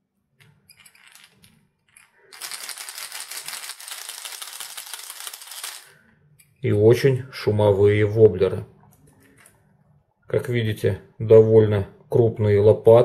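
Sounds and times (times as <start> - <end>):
lure rattle balls clattering: 0.4 - 6.0.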